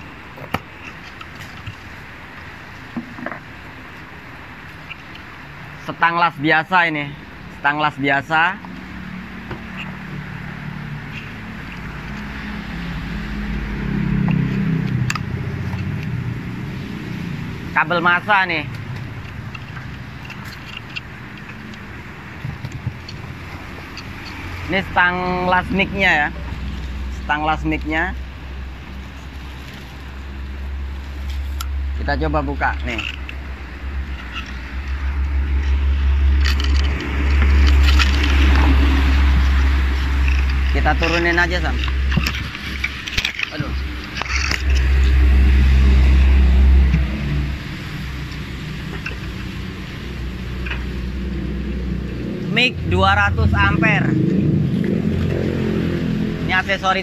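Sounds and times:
vehicle engine passing: 0:07.0 - 0:57.0
low rumble: 0:43.8 - 0:56.7.

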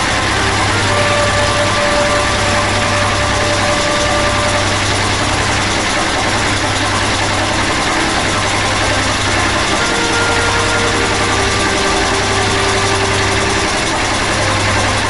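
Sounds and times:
tractor engine idling: 0:00.0 - 0:15.0.

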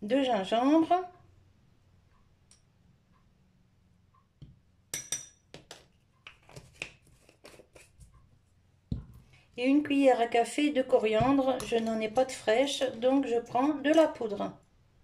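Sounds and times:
spice jars clicking and knocking: 0:11.1 - 0:12.5.

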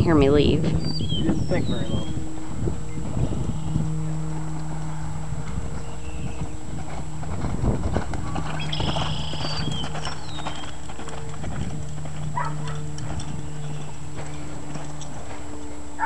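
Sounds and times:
horse hoofbeats on sand: 0:04.5 - 0:16.0.

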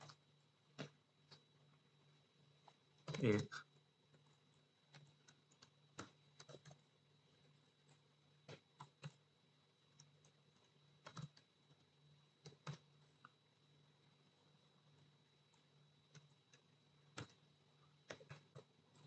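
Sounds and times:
faint steady hum: 0:00.0 - 0:19.0
typing on a computer keyboard: 0:04.8 - 0:09.3, 0:09.9 - 0:11.8, 0:12.4 - 0:13.0, 0:15.5 - 0:19.0.

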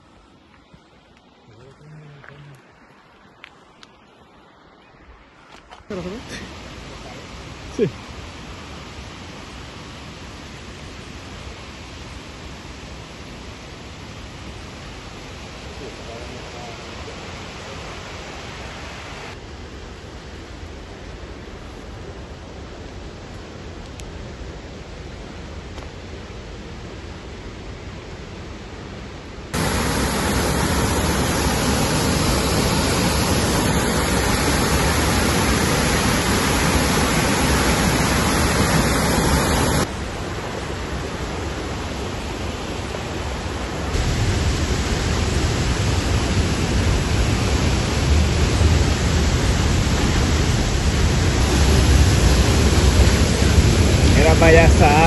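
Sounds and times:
creek rushing over rocks: 0:29.5 - 0:55.0.

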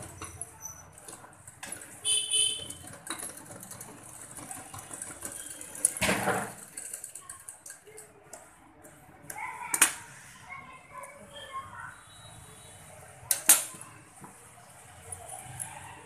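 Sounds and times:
sewing machine stitching: 0:00.0 - 0:07.2.

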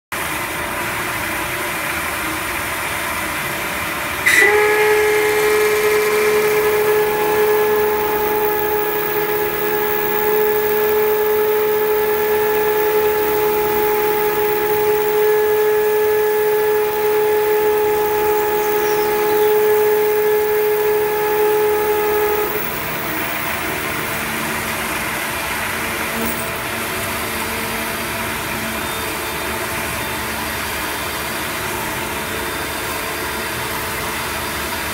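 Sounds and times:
high-pitched cutting squeal: 0:04.3 - 0:24.6
milling machine cutting hiss: 0:04.3 - 0:26.6.

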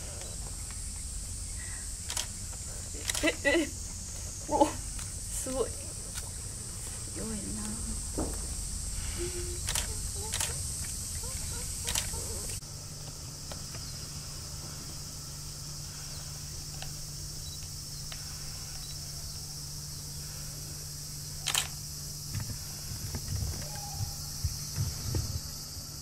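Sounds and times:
cicada chorus drone: 0:00.0 - 0:26.0
low steady hum: 0:00.0 - 0:26.0.

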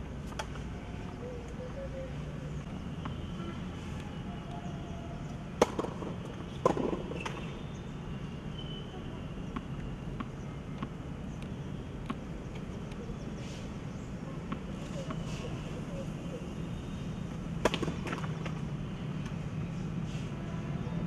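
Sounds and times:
tennis ball hits: 0:05.6 - 0:07.3
tennis ball bouncing: 0:05.6 - 0:07.5.

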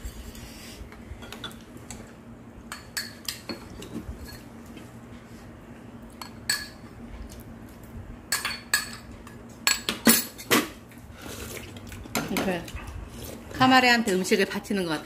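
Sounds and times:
spoon clinking against bowls: 0:06.2 - 0:06.8, 0:08.3 - 0:10.4.

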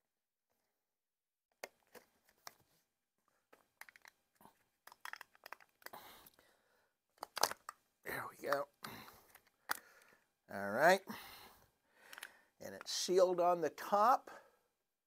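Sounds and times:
plastic bottle cap clicking: 0:04.8 - 0:05.9, 0:07.2 - 0:07.8.

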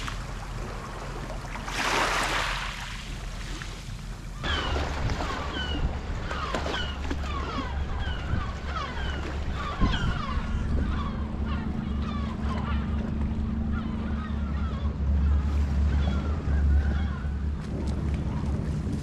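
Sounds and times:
gulls calling: 0:04.2 - 0:19.0
steady low rumble: 0:07.6 - 0:19.0.

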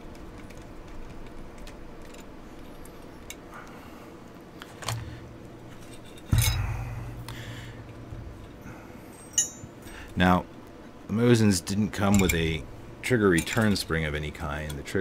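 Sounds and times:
loud metal clunk with ringing: 0:06.2 - 0:09.8.

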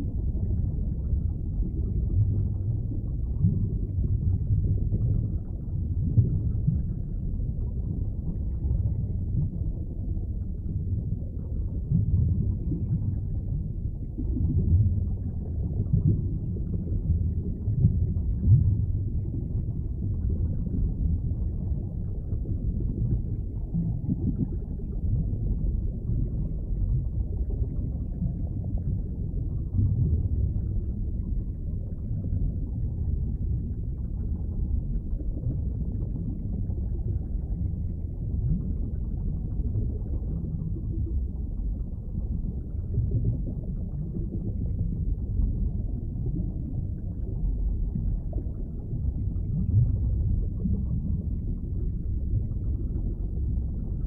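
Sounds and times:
muffled rumble of moving water: 0:00.0 - 0:54.0.

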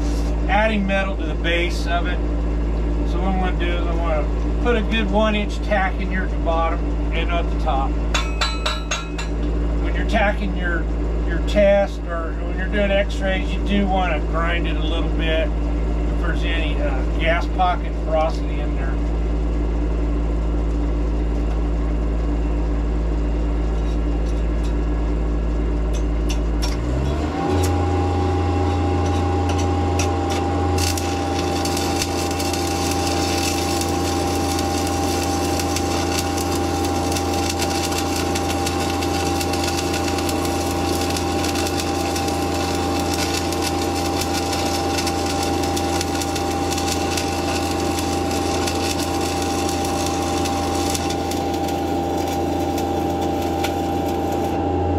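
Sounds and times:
crackling hiss of welding arc: 0:00.0 - 0:07.9, 0:29.0 - 0:54.6
welding machine engine running: 0:00.0 - 0:54.9.

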